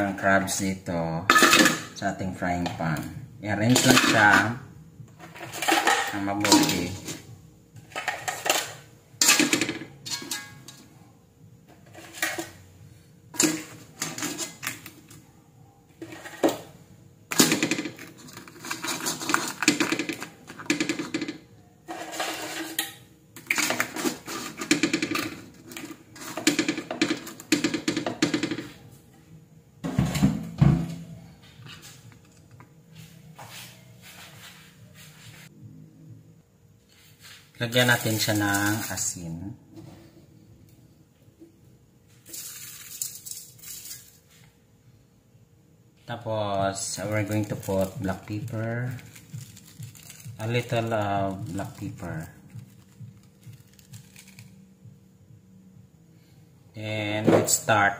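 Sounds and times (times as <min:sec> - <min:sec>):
faint steady hum: 0:00.0 - 0:57.9
crab shells clattering on metal: 0:03.7 - 0:04.6, 0:05.2 - 0:07.2, 0:07.8 - 0:10.9, 0:13.4 - 0:15.1, 0:17.3 - 0:28.7, 0:42.3 - 0:44.2, 0:46.9 - 0:54.6.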